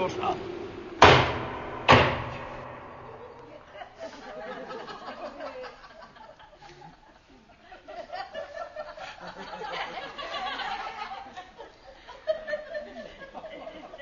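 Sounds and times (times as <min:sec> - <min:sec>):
audience laughing: 0:03.2 - 0:14.0.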